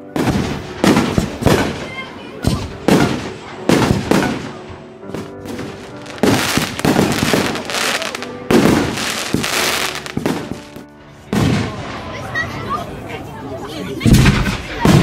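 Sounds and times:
music playing: 0:00.0 - 0:15.0
firework shells bursting: 0:05.1 - 0:10.8.

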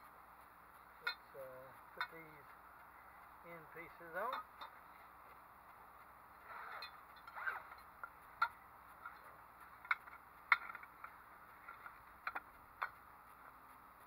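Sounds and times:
metal frame clicks and knocks: 0:09.8 - 0:10.9.

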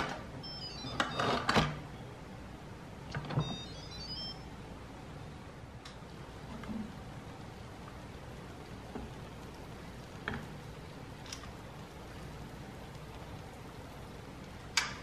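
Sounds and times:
pressure cooker electronic chime: 0:00.4 - 0:01.5, 0:03.4 - 0:04.5.

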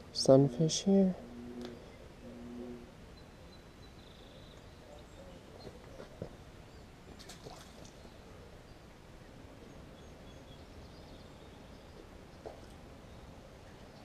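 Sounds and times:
faint low rumble: 0:00.0 - 0:06.9.

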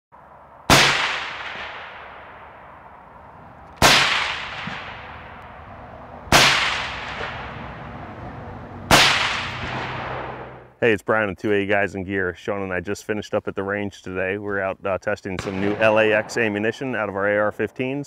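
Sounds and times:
rifle shots with echo: 0:00.7 - 0:05.7, 0:06.3 - 0:07.9, 0:08.9 - 0:10.6, 0:15.4 - 0:17.8.

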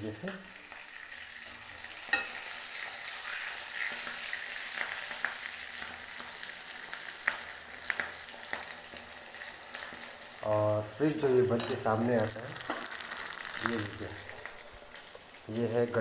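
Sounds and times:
food sizzling in hot oil: 0:00.0 - 0:16.0
metal spoon clicking on pan: 0:02.1 - 0:02.4.

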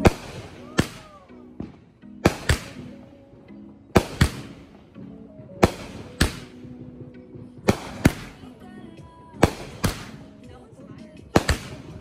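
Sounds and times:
firework bangs: 0:00.0 - 0:03.1, 0:03.9 - 0:04.8, 0:05.6 - 0:06.9, 0:07.6 - 0:08.5, 0:09.4 - 0:10.4, 0:11.4 - 0:12.0.

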